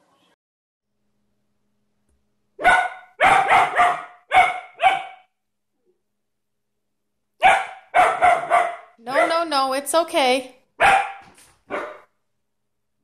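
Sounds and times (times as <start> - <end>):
puppy barking: 2.6 - 5.3, 7.4 - 9.4, 10.8 - 12.1.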